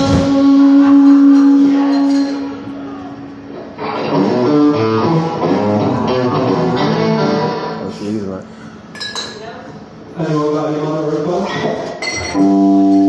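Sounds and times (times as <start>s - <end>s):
person singing: 0.0s - 2.1s
electric guitars: 0.0s - 8.0s, 12.3s - 13.0s
live rock band: 0.0s - 8.0s, 12.4s - 13.0s.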